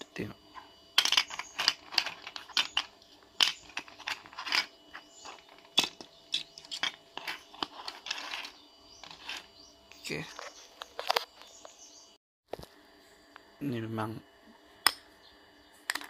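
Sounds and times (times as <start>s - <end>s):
plastic parts clicking and tapping: 1.0s - 9.5s
scratchy rubs: 6.6s - 9.5s.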